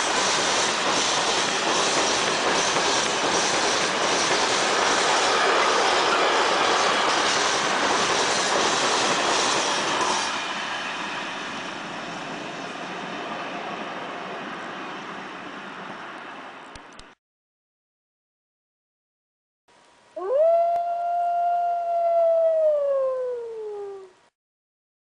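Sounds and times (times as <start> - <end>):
train wheels clattering over rails: 0.0 - 11.7.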